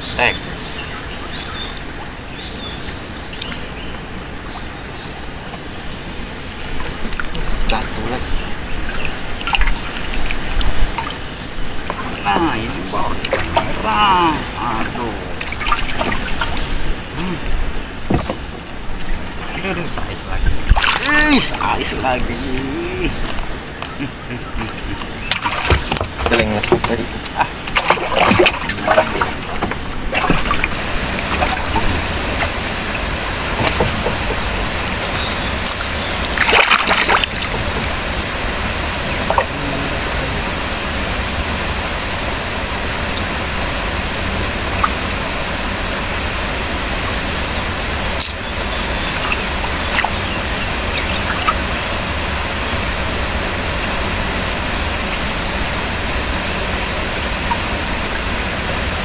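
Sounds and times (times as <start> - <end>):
water rushing and sloshing: 0.0 - 59.0
wind: 0.0 - 59.0
water splash: 8.7 - 17.4, 19.3 - 22.6, 24.6 - 46.3, 47.2 - 53.2
high-pitched whine: 27.8 - 59.0.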